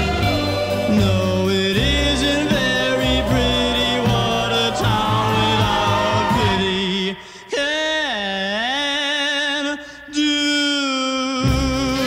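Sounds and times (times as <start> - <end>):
person singing a song: 0.0 - 12.0.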